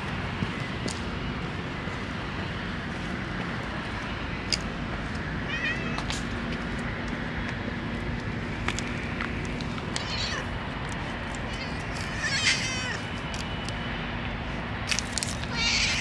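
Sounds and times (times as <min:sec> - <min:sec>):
outdoor background noise: 0:00.0 - 0:16.0
cat meowing: 0:05.5 - 0:06.1, 0:10.0 - 0:10.5, 0:11.5 - 0:13.0, 0:15.5 - 0:16.0.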